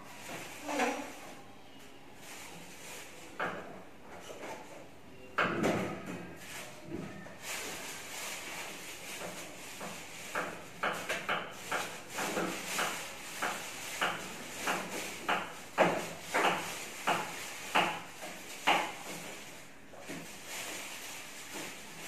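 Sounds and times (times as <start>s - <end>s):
leafy greens and plastic bag rustling: 0.0s - 4.8s, 5.7s - 22.0s
plastic bag crinkling: 7.4s - 10.8s, 11.6s - 22.0s.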